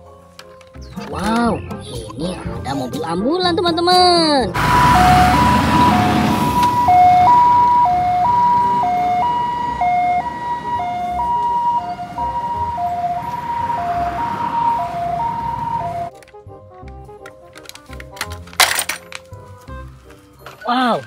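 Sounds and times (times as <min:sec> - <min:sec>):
passing road traffic: 0:00.0 - 0:16.2
ambulance siren two-tone: 0:04.6 - 0:16.1.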